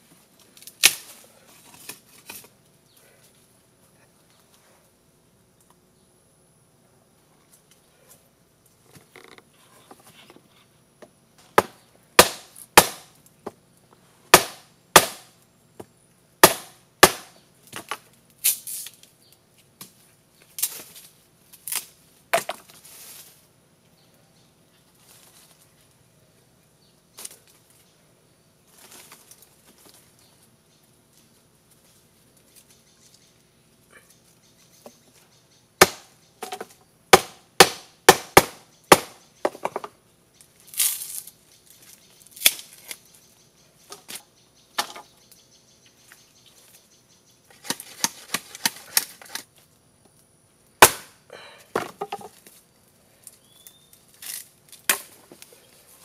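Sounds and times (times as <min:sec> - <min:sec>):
knife chopping bamboo: 0:11.5 - 0:13.1, 0:14.3 - 0:15.3, 0:16.4 - 0:17.9, 0:35.8 - 0:39.9, 0:50.8 - 0:51.1.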